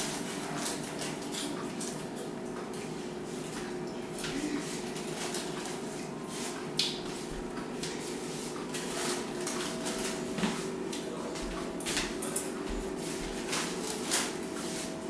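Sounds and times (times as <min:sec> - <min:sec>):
indoor background hum: 0:00.0 - 0:15.0.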